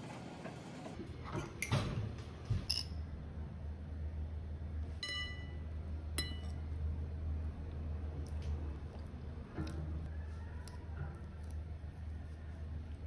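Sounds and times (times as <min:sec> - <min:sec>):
low steady hum: 0:01.0 - 0:13.0
cutlery clinking on ceramic bowl: 0:06.2 - 0:06.6.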